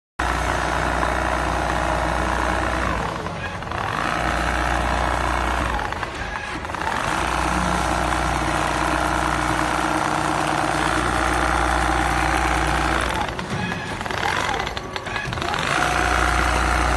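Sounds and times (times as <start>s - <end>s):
sewing machine running: 0.2s - 16.9s.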